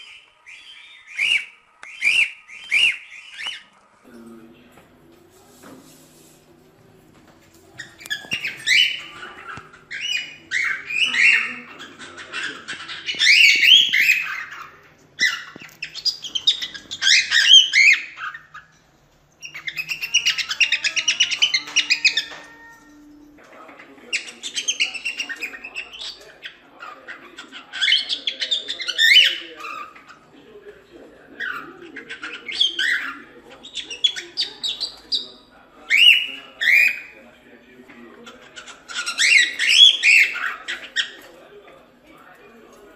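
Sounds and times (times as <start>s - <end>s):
bird rapid chattering: 7.8s - 18.8s, 38.2s - 41.3s.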